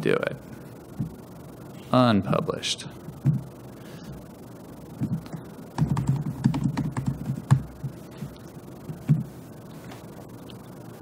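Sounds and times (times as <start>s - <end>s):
computer keyboard typing: 5.0s - 9.2s.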